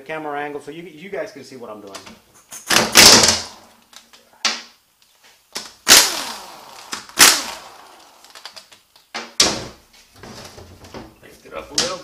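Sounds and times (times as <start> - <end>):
air impact wrench bursts: 5.8 - 8.4.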